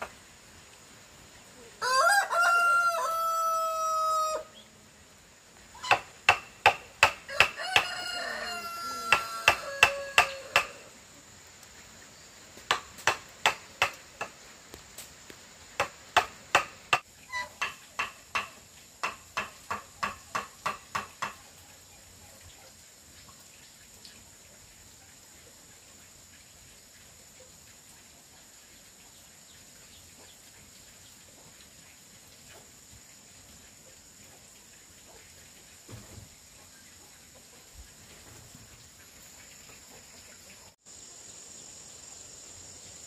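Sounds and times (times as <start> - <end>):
rooster crowing: 1.8 - 4.6, 7.3 - 10.9
sharp knocks: 5.9 - 7.6, 12.7 - 14.4, 15.8 - 17.0.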